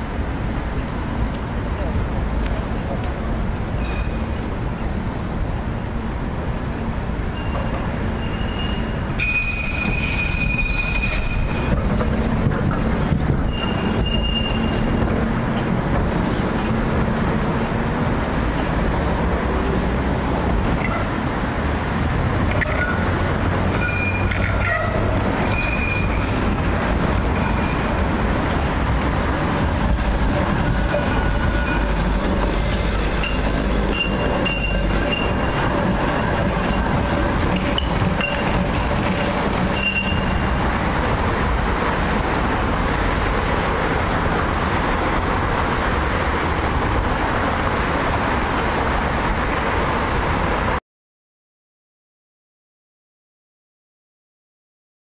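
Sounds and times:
tram wheels rumbling on rails: 0:00.0 - 0:50.8
tram wheels squealing: 0:00.3 - 0:41.2.

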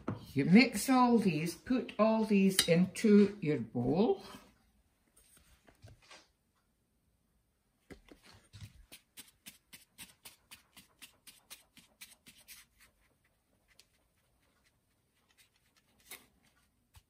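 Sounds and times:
flour sifting through plastic sieve: 0:08.2 - 0:17.0.

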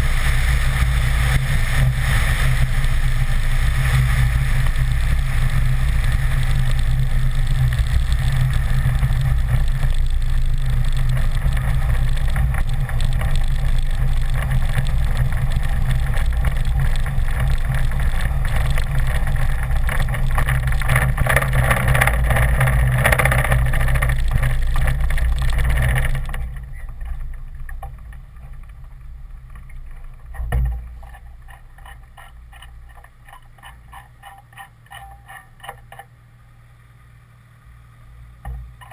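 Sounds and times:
aircraft engine and propeller: 0:00.0 - 0:23.8.

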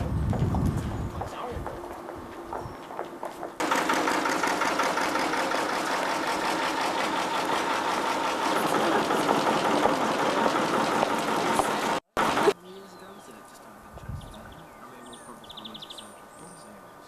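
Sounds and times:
engine running with fast rattle: 0:03.6 - 0:12.6.

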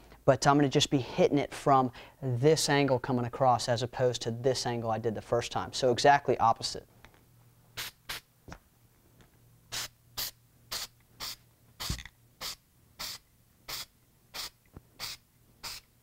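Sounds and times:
spray can hissing puffs: 0:07.8 - 0:08.3, 0:09.7 - 0:16.0.

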